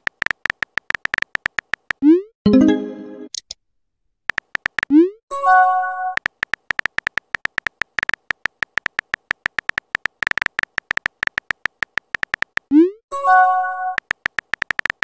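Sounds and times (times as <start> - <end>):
keyboard typing clicks: 0.0 - 2.2, 4.3 - 5.1, 6.1 - 15.0.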